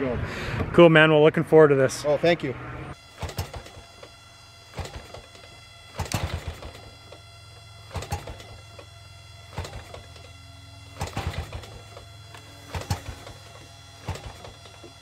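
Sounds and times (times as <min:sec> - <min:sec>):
engine knock from propeller flip: 0:03.2 - 0:03.8, 0:04.8 - 0:05.2, 0:05.9 - 0:06.8, 0:07.9 - 0:08.6, 0:09.5 - 0:10.1, 0:10.9 - 0:12.0, 0:12.7 - 0:13.4, 0:14.0 - 0:14.7.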